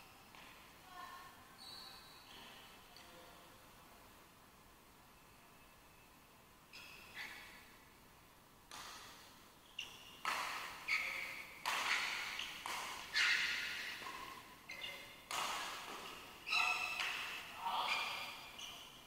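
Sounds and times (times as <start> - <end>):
rackets striking shuttlecock: 10.2 - 18.1.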